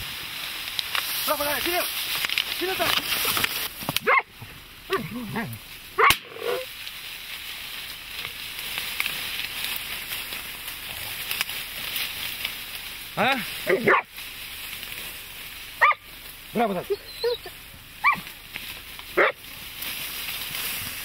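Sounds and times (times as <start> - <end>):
dry reeds crackling and rustling: 0.0 - 21.0
dogs barking and yelping: 4.0 - 6.7, 13.6 - 14.2, 15.8 - 18.4, 19.1 - 19.4
loud sharp crack: 6.0 - 6.4.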